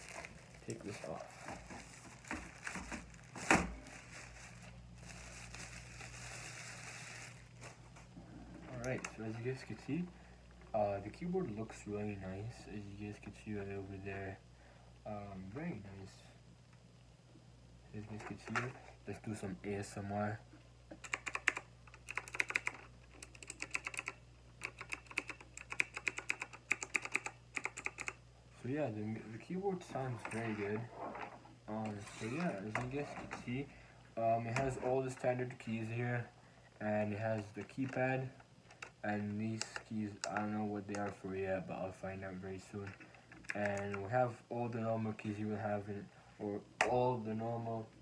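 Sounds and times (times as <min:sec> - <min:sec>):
plastic packaging crinkling: 0:00.0 - 0:08.0
sharp plastic crackle: 0:00.0 - 0:08.0
mechanical keyboard key clacks: 0:21.0 - 0:28.2.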